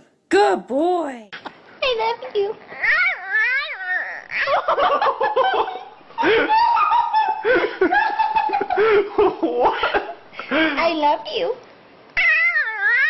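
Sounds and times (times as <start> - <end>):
person laughing hard: 4.4 - 10.2
dog howl-like vocalizing: 12.2 - 13.0.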